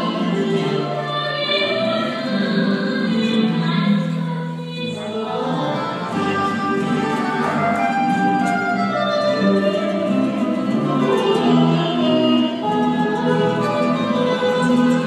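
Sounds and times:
choir-like singing: 0.0s - 15.0s
guitar ensemble playing: 0.0s - 15.0s.

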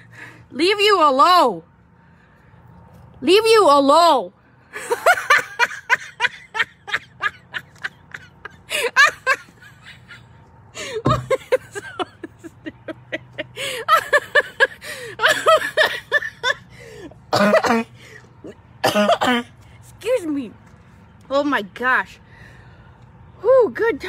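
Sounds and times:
woman laughing hard: 4.8s - 16.7s.

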